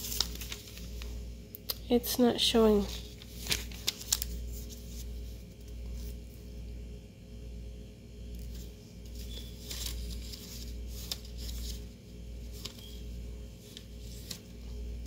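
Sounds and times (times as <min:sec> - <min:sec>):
paper receipt rustling: 0:00.0 - 0:01.2, 0:02.5 - 0:06.4, 0:08.4 - 0:15.0
low steady hum: 0:00.0 - 0:15.0.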